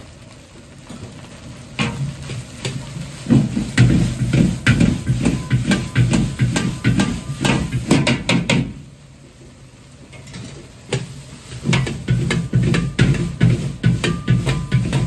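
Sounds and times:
metal ladle clanking against wok: 2.6s - 8.4s, 11.7s - 15.0s.

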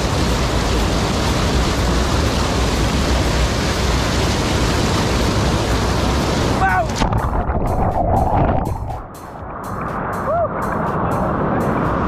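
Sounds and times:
waterfall rushing into a pool: 0.0s - 9.0s.

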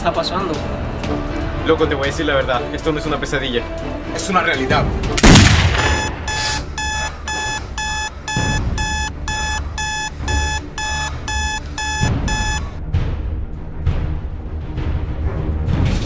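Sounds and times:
loud gunshot: 5.2s - 6.3s
phone alarm beeping: 5.8s - 12.8s.

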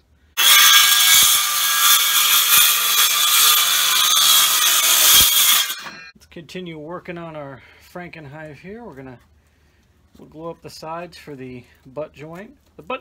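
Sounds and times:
circular saw cutting wood: 0.4s - 6.1s.

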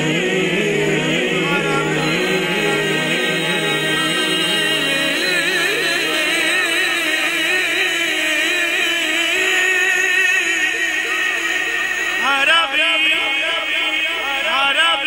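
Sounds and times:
man singing with vibrato: 0.0s - 15.0s.

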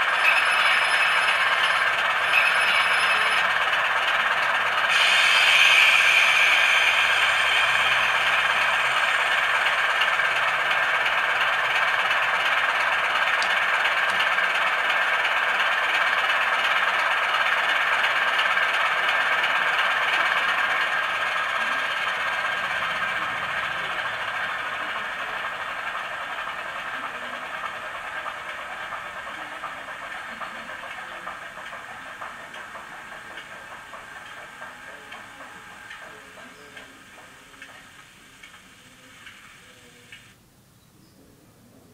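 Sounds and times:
tinny diesel engine clatter: 0.0s - 40.3s.

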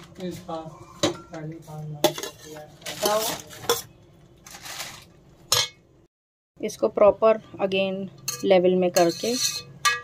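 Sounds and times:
metal spoon scraping pot: 2.0s - 4.0s, 8.2s - 10.0s.

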